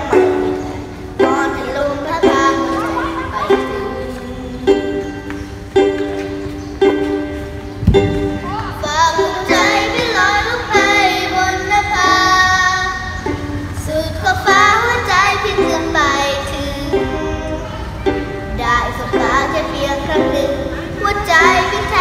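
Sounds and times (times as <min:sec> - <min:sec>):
child singing pop song: 0:00.0 - 0:05.0, 0:08.7 - 0:17.8, 0:18.5 - 0:22.0
ukulele chords strummed: 0:00.0 - 0:22.0
low thump: 0:07.8 - 0:08.5.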